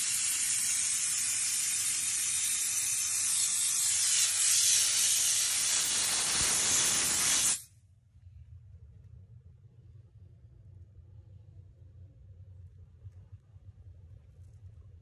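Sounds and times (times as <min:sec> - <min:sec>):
steam cleaner hissing: 0:00.0 - 0:07.7.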